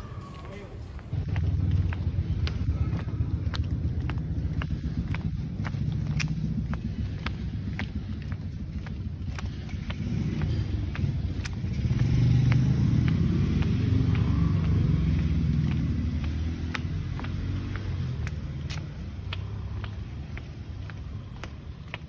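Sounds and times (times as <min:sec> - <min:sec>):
footsteps on concrete: 0:00.0 - 0:22.0
vehicle engine passing: 0:00.0 - 0:22.0.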